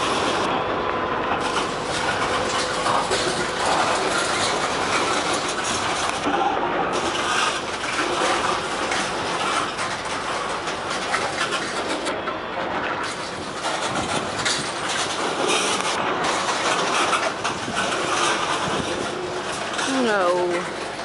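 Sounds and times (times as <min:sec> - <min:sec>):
steel wheels clattering on rails: 0:01.4 - 0:06.3, 0:13.0 - 0:21.0.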